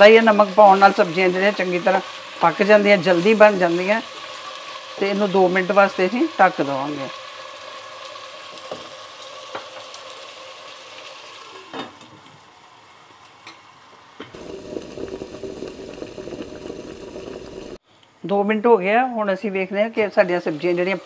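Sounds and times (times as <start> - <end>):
vegetables sizzling in oil: 0.0 - 17.8, 19.8 - 21.0
electronic static with hum: 14.4 - 17.8.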